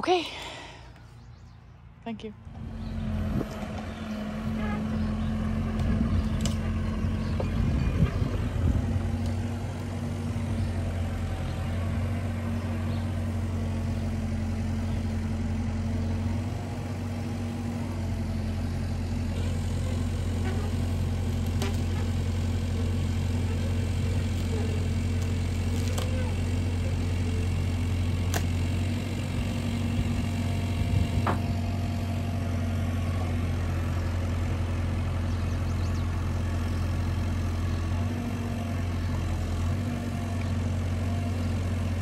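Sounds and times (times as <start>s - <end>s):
diesel engine running: 0.0s - 42.0s.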